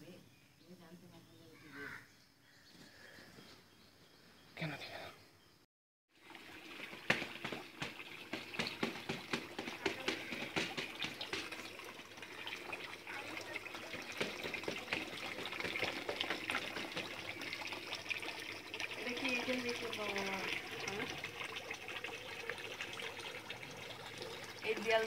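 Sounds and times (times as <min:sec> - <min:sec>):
water splashing and trickling: 0:06.1 - 0:25.0.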